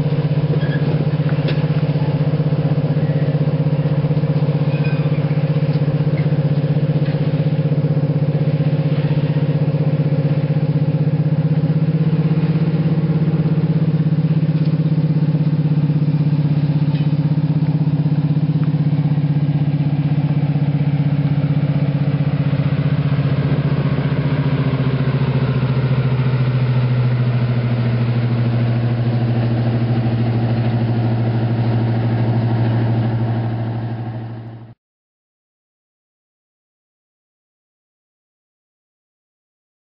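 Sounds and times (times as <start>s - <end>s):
diesel locomotive engines droning: 0.0s - 34.8s.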